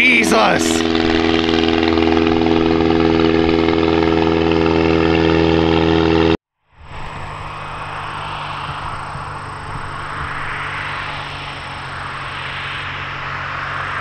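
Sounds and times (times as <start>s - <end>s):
distant drone: 0.0s - 14.0s
light plane engine droning: 0.0s - 14.0s.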